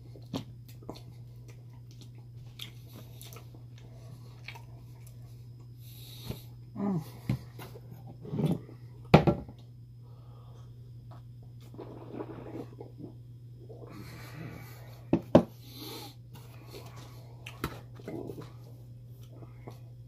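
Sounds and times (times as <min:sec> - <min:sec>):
steady low hum: 0:00.0 - 0:20.0
chewing: 0:00.1 - 0:05.7.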